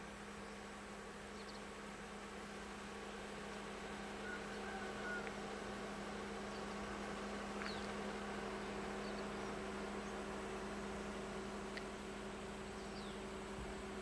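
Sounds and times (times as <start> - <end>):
electrical hum: 0.0 - 14.0.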